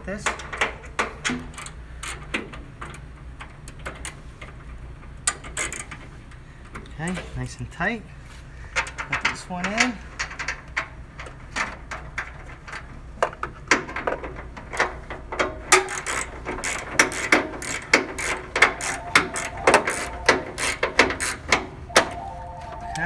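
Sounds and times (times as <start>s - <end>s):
hand ratchet clicking: 5.2s - 6.0s, 14.7s - 21.7s.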